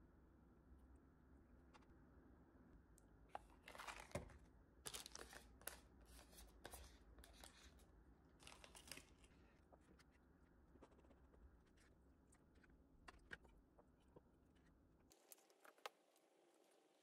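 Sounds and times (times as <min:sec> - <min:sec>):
packaging rustling and crinkling: 0:03.4 - 0:07.8, 0:08.4 - 0:10.1.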